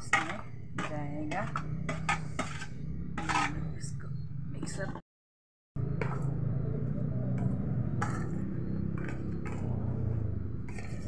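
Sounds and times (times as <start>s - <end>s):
metal pot clinking and scraping: 0.0s - 3.7s, 10.7s - 11.0s.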